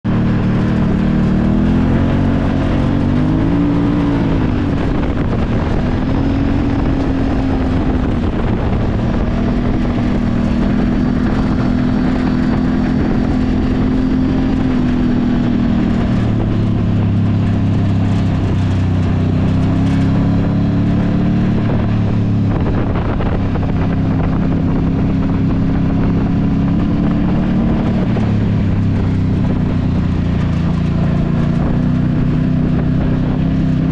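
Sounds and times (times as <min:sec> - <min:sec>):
off-road vehicle engine revving: 0:00.0 - 0:33.9.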